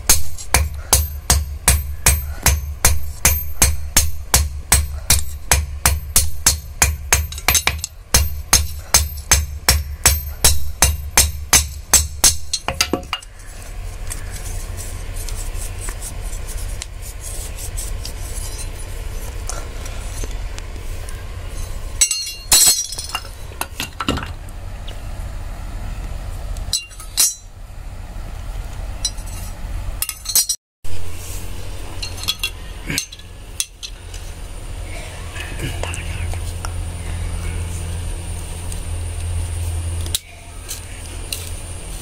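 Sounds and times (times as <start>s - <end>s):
steady low hum: 0.0s - 42.0s
metal pieces clinking: 21.6s - 24.3s, 29.0s - 30.6s, 32.0s - 34.1s.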